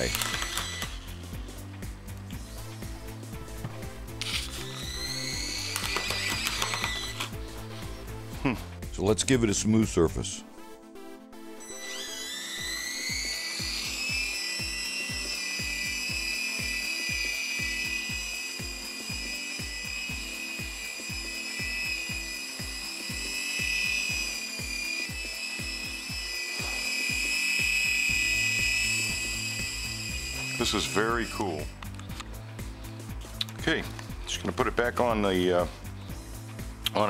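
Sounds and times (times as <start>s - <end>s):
toy helicopter rotor whine: 0.0s - 1.6s, 4.2s - 7.4s, 11.6s - 31.8s
music with steady beat: 0.0s - 9.1s, 12.5s - 37.0s.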